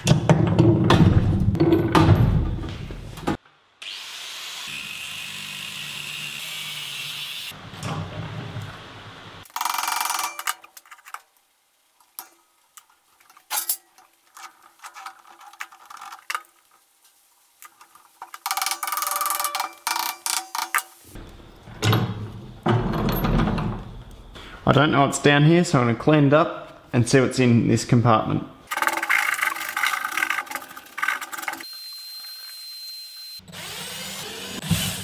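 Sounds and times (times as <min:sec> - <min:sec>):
metal parts clinking: 0:09.5 - 0:11.3, 0:13.3 - 0:16.5, 0:17.8 - 0:21.0
wrench clicking: 0:18.5 - 0:20.9.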